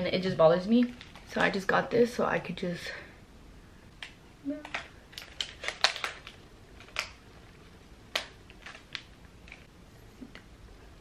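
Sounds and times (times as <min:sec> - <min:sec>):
plastic bag crinkling: 0:04.6 - 0:09.7.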